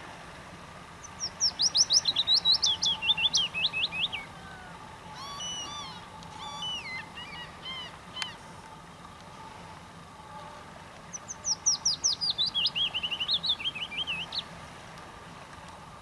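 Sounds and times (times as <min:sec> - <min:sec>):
small songbird singing: 0:01.0 - 0:08.5, 0:11.0 - 0:14.5.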